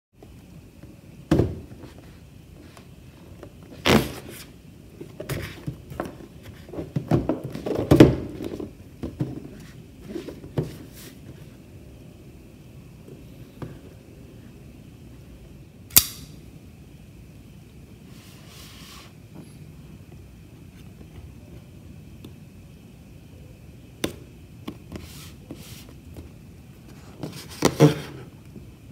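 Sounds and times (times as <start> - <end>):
sharp click: 15.9 - 16.3.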